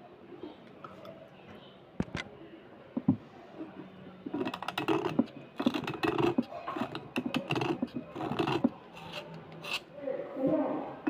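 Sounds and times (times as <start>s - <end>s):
knife blade scraping slate pencil: 4.3s - 9.9s.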